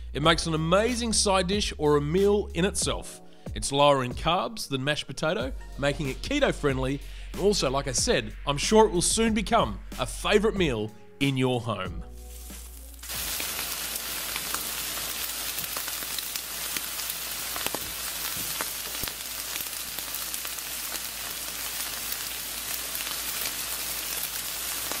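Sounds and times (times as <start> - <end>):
steak sizzling on a grill: 12.3 - 25.0
fat popping and crackling: 12.6 - 25.0.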